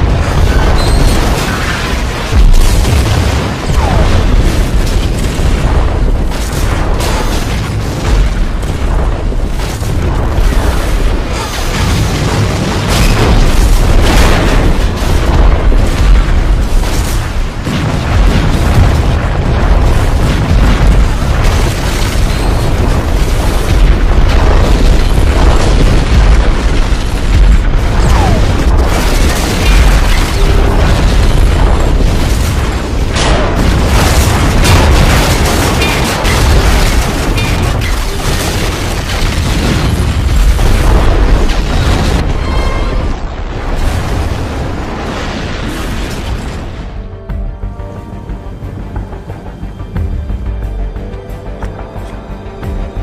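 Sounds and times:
loud explosions and booms: 0.0s - 47.7s
heavy low rumble: 12.0s - 53.0s.

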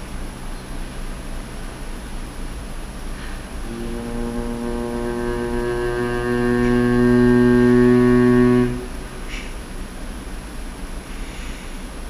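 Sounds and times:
ship's horn blast: 3.2s - 9.6s.

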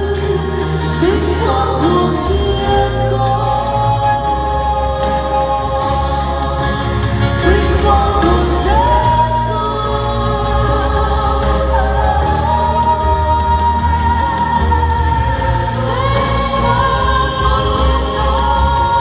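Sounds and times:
instrumental accompaniment: 0.0s - 19.0s
vocal trio singing: 0.0s - 19.0s.

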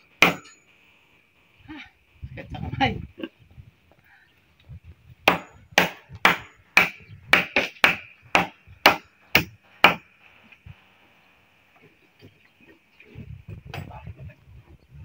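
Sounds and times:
wood struck hard: 0.2s - 0.6s, 5.2s - 10.1s.

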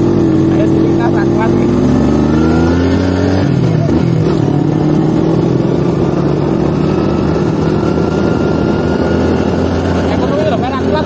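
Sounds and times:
motorcycle engine running: 0.0s - 11.0s
road and wind noise: 0.0s - 11.0s.

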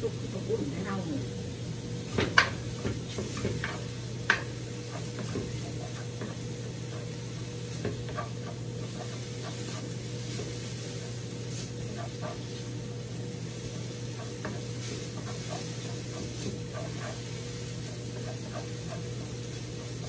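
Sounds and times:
steady low hum: 0.0s - 20.0s
pork sizzling in frying pan: 0.2s - 20.0s
spatula knocking against pan: 2.2s - 7.2s
wooden spatula scraping pan: 14.1s - 20.0s.

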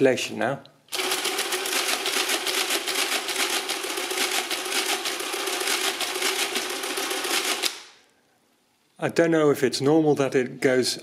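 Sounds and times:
mechanical calculator clatter: 0.9s - 7.8s
calculator motor humming: 1.0s - 7.7s.

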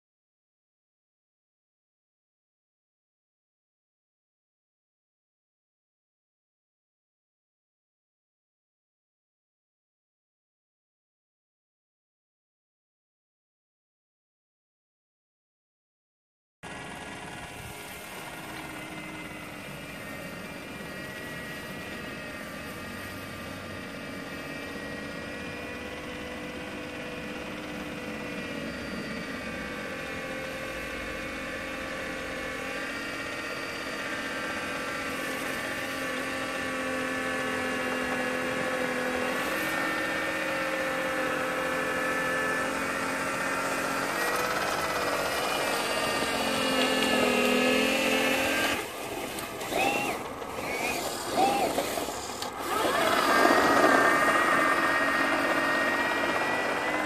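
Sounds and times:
small motors whining: 16.7s - 57.0s.

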